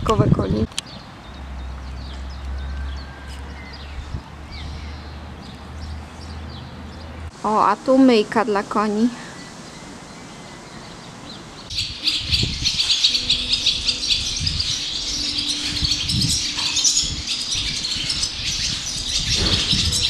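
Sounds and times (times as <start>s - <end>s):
swallows twittering: 9.0s - 20.0s.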